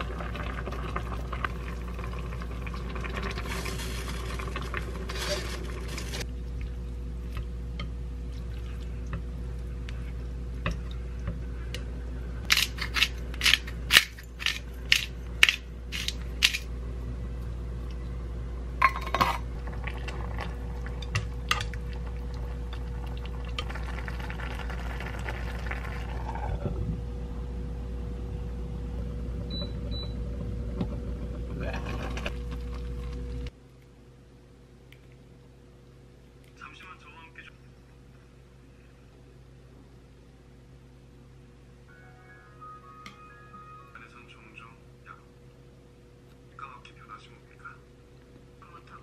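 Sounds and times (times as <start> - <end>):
soup simmering in a pot: 0.0 - 12.0, 19.0 - 26.6, 29.4 - 33.6
steady hum: 0.0 - 49.0.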